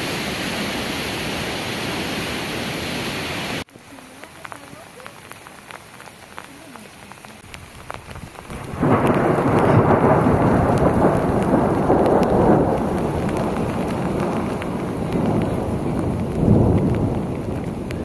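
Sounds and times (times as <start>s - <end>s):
steady rain: 0.0s - 18.0s
water dripping: 3.6s - 18.0s
thunder rumbling: 7.6s - 18.0s.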